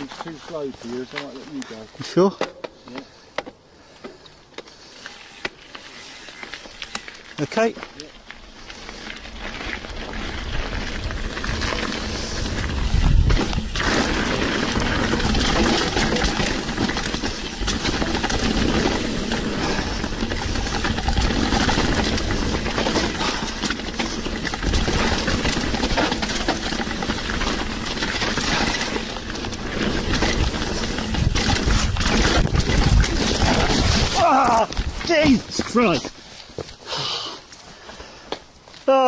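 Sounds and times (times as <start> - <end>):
bike rattling over bumps: 0.0 - 36.8
bike tyres on dirt: 0.0 - 39.0
wind rush: 10.4 - 14.2.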